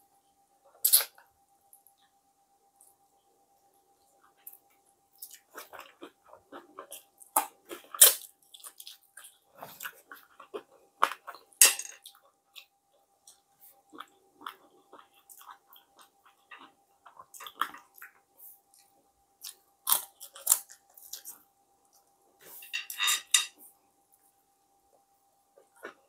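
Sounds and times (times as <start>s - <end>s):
chewing and lip-smacking: 5.2s - 11.5s, 12.1s - 22.0s
crunchy chewing bursts: 12.1s - 21.4s.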